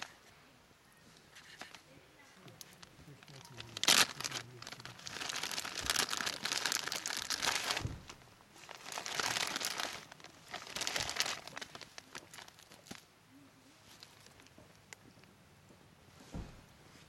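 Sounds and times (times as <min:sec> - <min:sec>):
plastic bag crinkling: 0:01.4 - 0:01.8, 0:02.5 - 0:13.0, 0:13.8 - 0:14.6.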